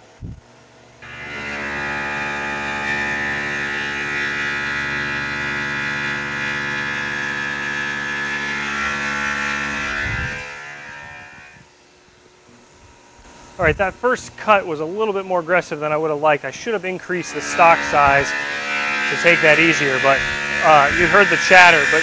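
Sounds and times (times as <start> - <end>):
milling machine chatter ringing: 17.0 - 22.0.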